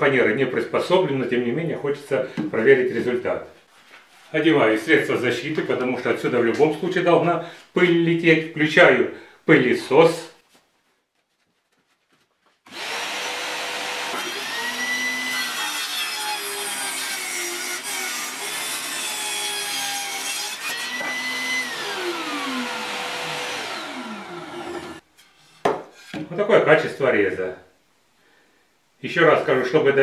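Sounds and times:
table saw cutting wood: 0:12.7 - 0:25.1
saw motor whine: 0:20.8 - 0:25.0.

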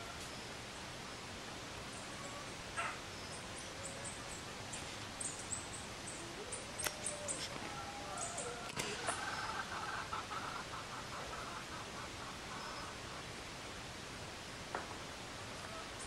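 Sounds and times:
steady hiss: 0:00.0 - 0:16.0
birds chirping: 0:01.9 - 0:13.3.

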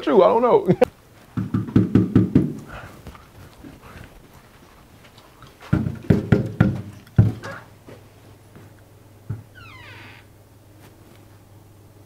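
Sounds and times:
knuckles knocking on door: 0:01.4 - 0:02.8, 0:05.7 - 0:07.6.

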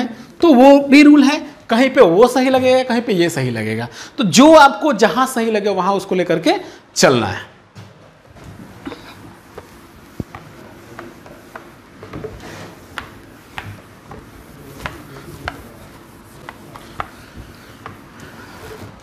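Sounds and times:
cloth rubbing on whiteboard: 0:08.4 - 0:19.0.

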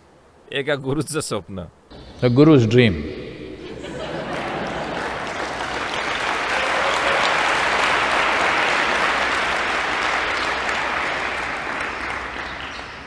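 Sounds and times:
audience applauding: 0:03.6 - 0:13.0.

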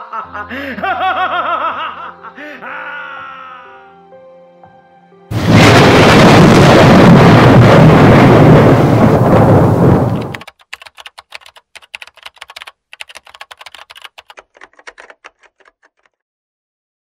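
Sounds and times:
keyboard typing clicks: 0:10.1 - 0:16.2.

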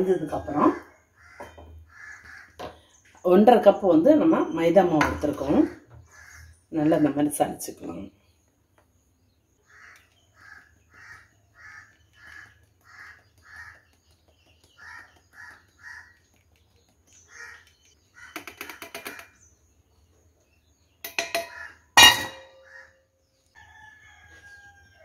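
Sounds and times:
crow cawing: 0:01.2 - 0:02.7, 0:06.1 - 0:06.5, 0:09.6 - 0:13.8, 0:14.8 - 0:16.1, 0:17.3 - 0:19.4, 0:21.4 - 0:21.9, 0:22.6 - 0:23.0
sharp metallic knocks: 0:21.0 - 0:22.7.

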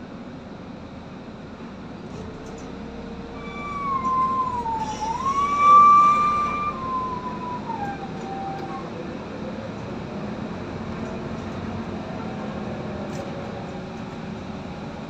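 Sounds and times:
bus engine hum: 0:00.0 - 0:15.0
siren wailing: 0:03.4 - 0:09.0.

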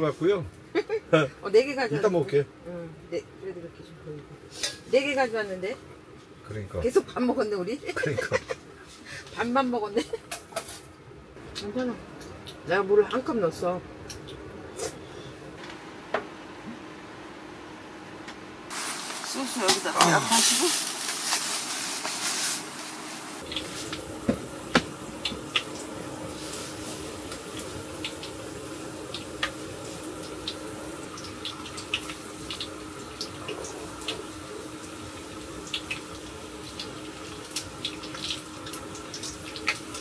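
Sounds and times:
faint steady hum: 0:00.0 - 0:40.0
food sizzling with pops: 0:18.7 - 0:40.0.

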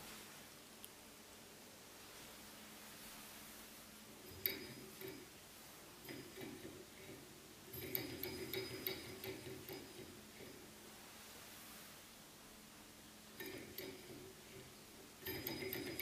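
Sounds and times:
flywheel flick: 0:04.2 - 0:10.8, 0:13.4 - 0:16.0
engine ticking and clinking: 0:04.3 - 0:05.3, 0:06.0 - 0:10.6, 0:13.4 - 0:16.0.

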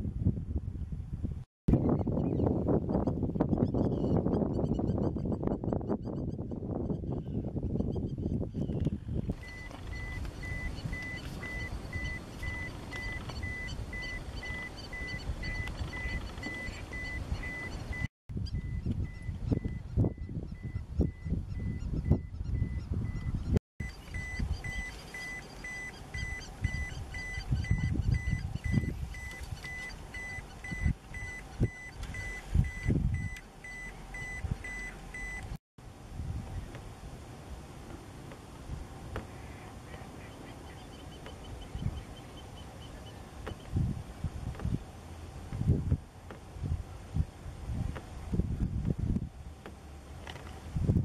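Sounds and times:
small birds chirping: 0:01.7 - 0:35.5, 0:39.2 - 0:43.9
electronic beeper beeping: 0:09.4 - 0:35.6.

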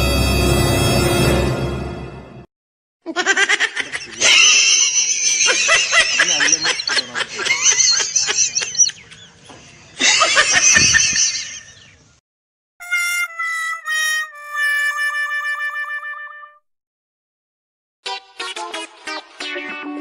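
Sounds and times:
person laughing hard: 0:03.1 - 0:09.0, 0:10.0 - 0:11.8.

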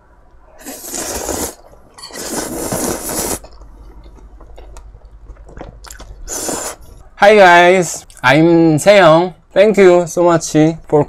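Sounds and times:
person slurping noodles: 0:00.6 - 0:03.6, 0:05.9 - 0:06.8
person chewing: 0:00.6 - 0:07.1.

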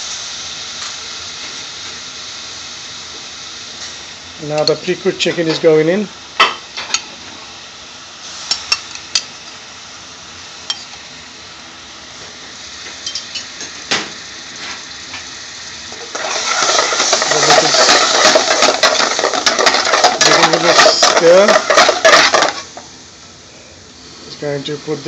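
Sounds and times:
curry sauce sizzling in a pan: 0:00.0 - 0:23.3
metal spoon scraping a pan: 0:16.1 - 0:22.7.

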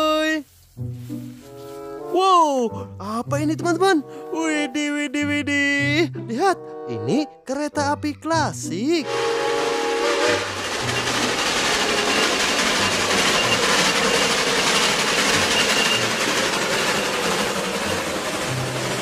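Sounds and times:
steam whistle chord: 0:09.0 - 0:14.2
steam locomotive passing: 0:09.0 - 0:19.0.

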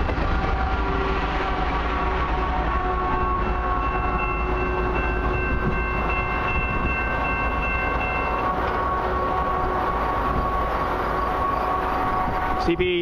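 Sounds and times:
freight train rumbling past: 0:00.0 - 0:13.0
steady high tones: 0:00.4 - 0:13.0.

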